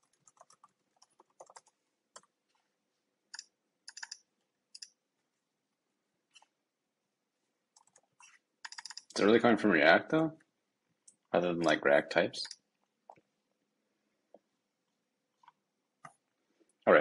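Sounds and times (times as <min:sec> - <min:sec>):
keyboard keystrokes: 0:08.6 - 0:09.1.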